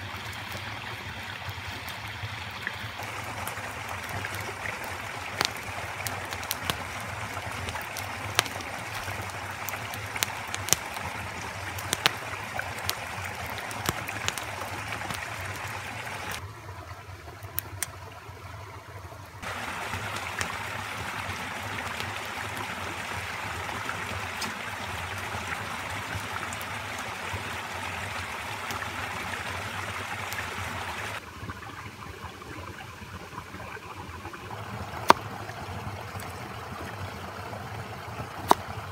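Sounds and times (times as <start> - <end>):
creek running: 0.0 - 38.9
sharp snaps and clicks: 5.4 - 6.9, 11.8 - 12.2, 12.8 - 15.3.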